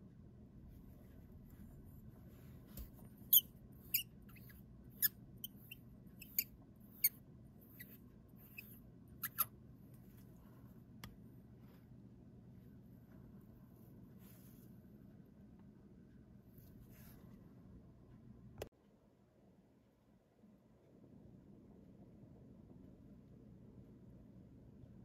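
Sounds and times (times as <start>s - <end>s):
metal threads squeaking and clicking: 3.2s - 9.5s.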